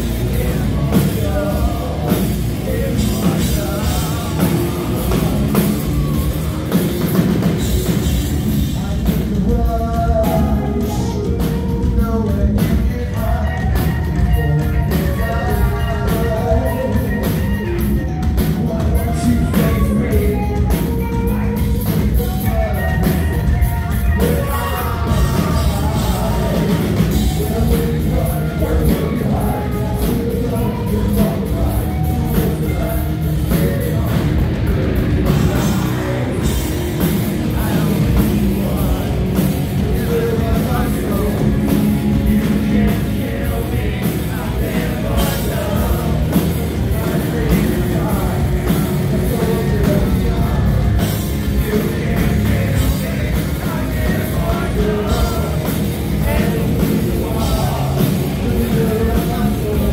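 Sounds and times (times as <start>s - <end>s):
bass guitar: 0.0s - 59.9s
drum kit: 0.0s - 59.9s
electric guitar: 0.0s - 59.9s
person singing: 0.0s - 59.9s.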